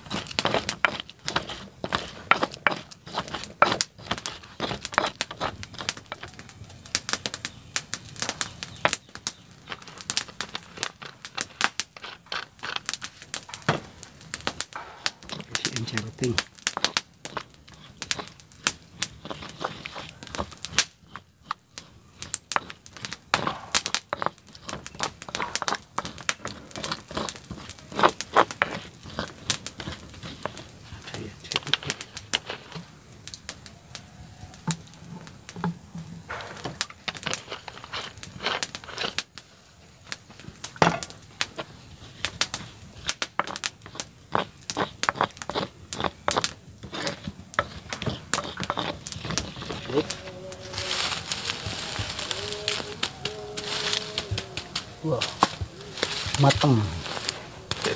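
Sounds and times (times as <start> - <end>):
pestle grinding in clay mortar: 0.0 - 7.4, 8.2 - 33.6, 34.5 - 39.4, 40.0 - 57.9
pestle tapping clay: 0.1 - 6.3, 11.0 - 30.6, 43.0 - 50.2.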